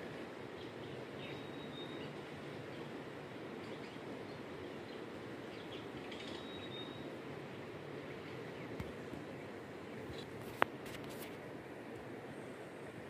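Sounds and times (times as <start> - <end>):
low outdoor rush: 0.0 - 13.0
faint whistled bird notes: 0.8 - 2.2, 5.6 - 7.1.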